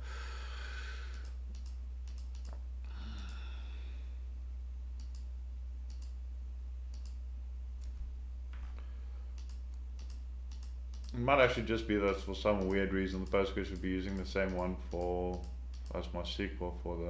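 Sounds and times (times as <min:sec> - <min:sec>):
low electrical hum: 0:00.0 - 0:17.0
computer mouse clicking: 0:01.1 - 0:02.6, 0:05.0 - 0:05.3, 0:05.9 - 0:06.2, 0:06.9 - 0:07.2, 0:09.4 - 0:11.2
soft breath out: 0:02.9 - 0:04.2.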